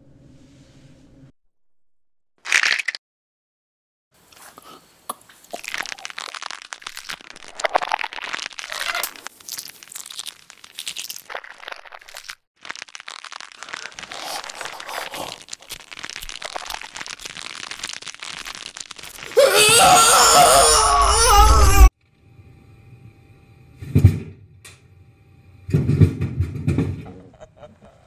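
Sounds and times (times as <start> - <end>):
dense crunching and cracking: 5.5 - 21.9.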